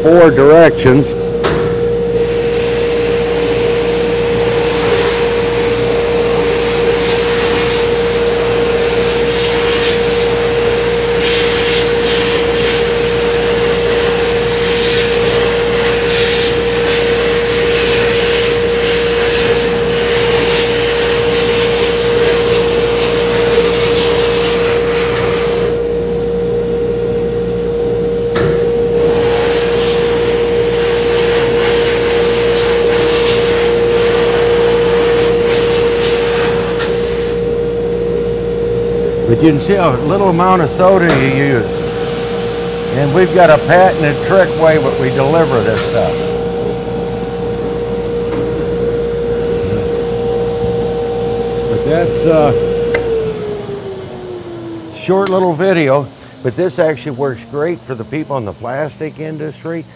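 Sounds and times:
compressed air blasting hiss: 1.7 - 25.8, 28.4 - 37.5, 41.0 - 46.5
cabinet motor humming: 39.0 - 59.9.

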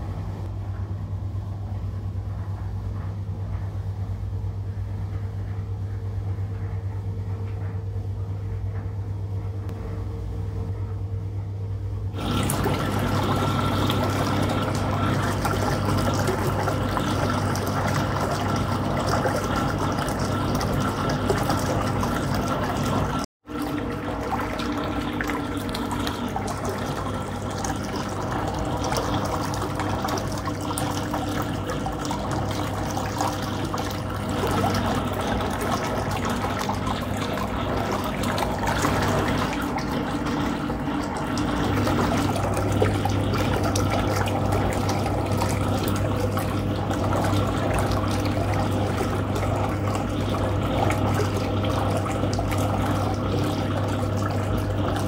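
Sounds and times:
washing machine sloshing water: 12.0 - 55.0.

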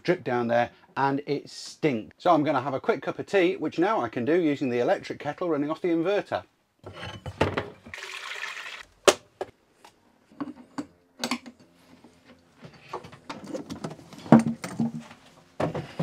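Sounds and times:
water pouring: 7.9 - 8.9.

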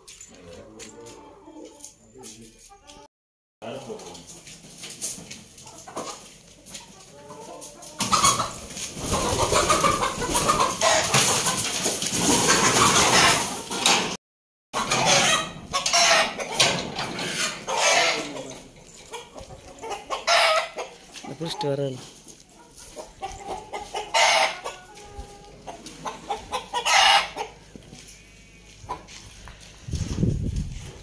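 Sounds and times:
chickens squawking and cackling: 0.4 - 3.1, 3.9 - 14.2, 14.8 - 31.0
wings flapping: 8.9 - 13.0.

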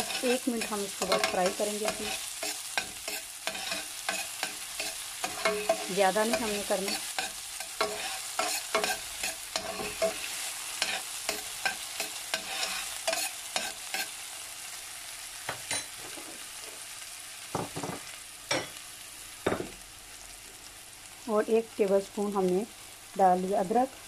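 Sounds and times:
metal spoon scraping pot: 0.0 - 10.2
onion sizzling in oil: 0.0 - 24.0.

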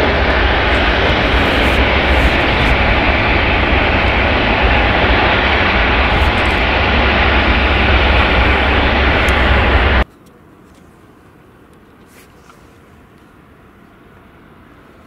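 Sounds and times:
deep rumble: 0.0 - 10.0
jet engines roaring: 0.0 - 10.0.

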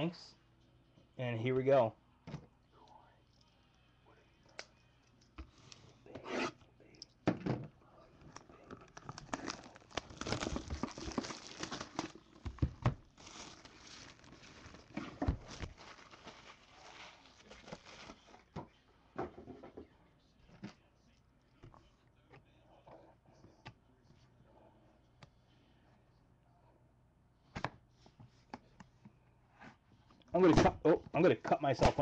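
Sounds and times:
plastic wrap tearing and crinkling: 8.3 - 18.5.

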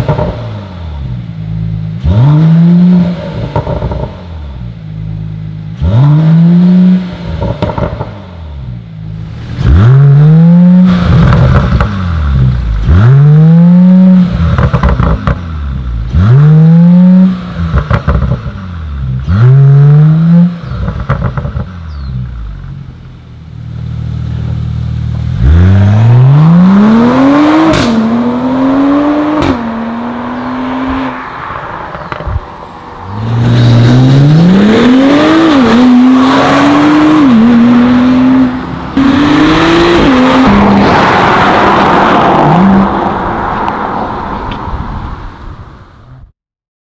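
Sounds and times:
car engine revving: 0.0 - 44.8
car engine idling: 20.8 - 25.5
car accelerating through upshifts: 25.3 - 32.4, 33.0 - 44.5.

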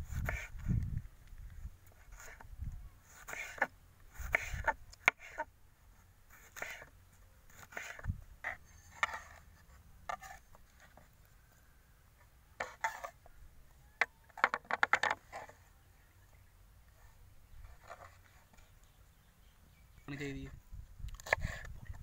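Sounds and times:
knife slicing on wooden board: 3.1 - 5.5.

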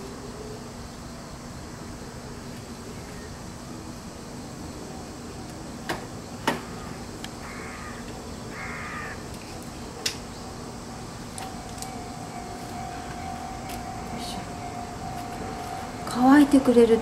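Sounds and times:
crow cawing: 6.7 - 9.3.

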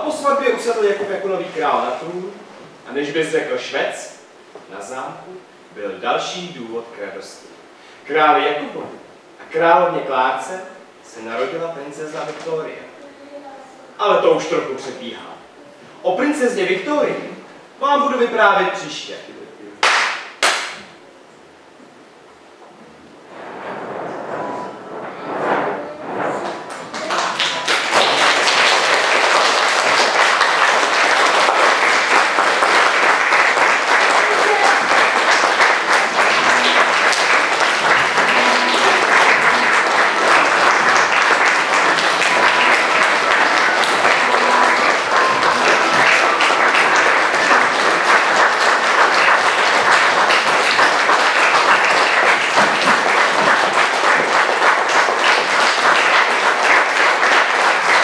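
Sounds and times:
audience applauding: 26.1 - 58.0.

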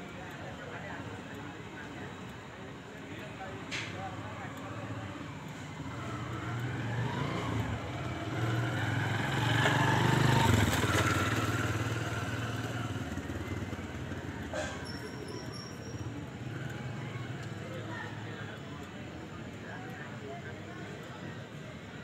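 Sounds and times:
motorcycle passing by: 5.7 - 14.6.

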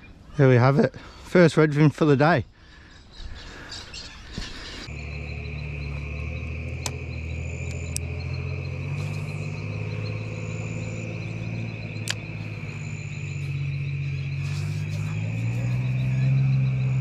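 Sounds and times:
insects trilling: 2.5 - 17.0
low steady drone: 4.8 - 17.0
sharp click: 6.8 - 7.0, 12.0 - 12.2.

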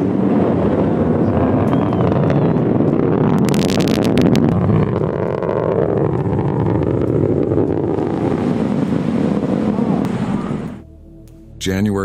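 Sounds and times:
sharp crackling: 0.0 - 10.8
distant rocket engine rumble: 0.0 - 11.0.

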